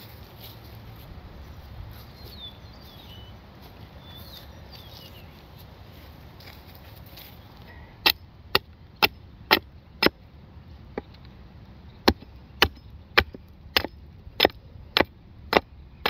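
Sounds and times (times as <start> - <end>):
axe chopping wood: 8.0 - 10.2, 12.0 - 15.7.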